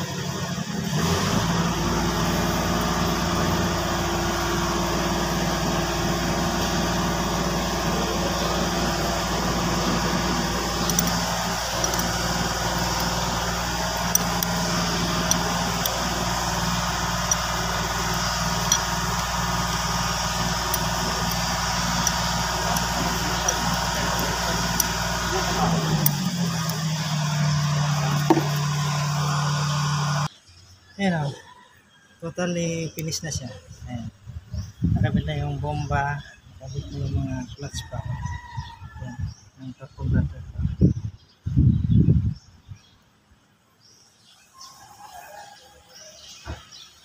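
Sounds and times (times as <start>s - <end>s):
engine idling: 0.0s - 30.3s.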